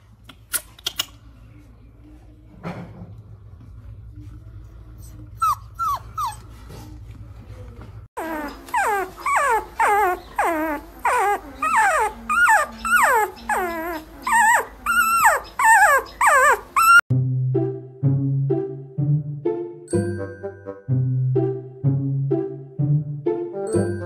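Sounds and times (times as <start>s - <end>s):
puppy whimpering: 5.0s - 6.6s, 8.2s - 17.1s.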